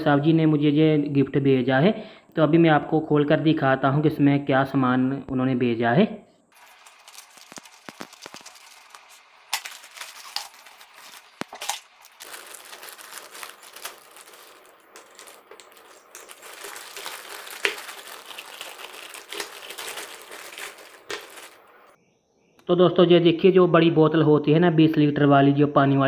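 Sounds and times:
plastic bag crinkling: 0:06.6 - 0:22.0
scissors snipping plastic: 0:06.7 - 0:21.6.

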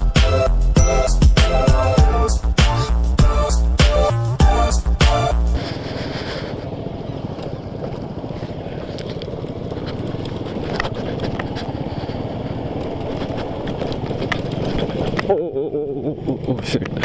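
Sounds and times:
motorcycle engine rumble: 0:00.0 - 0:17.0
clicks and knocks over cobbles: 0:07.3 - 0:15.4.

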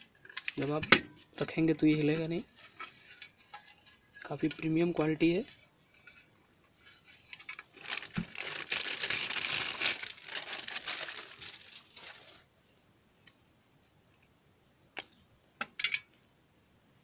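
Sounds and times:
plastic packaging crinkling: 0:07.3 - 0:12.5.

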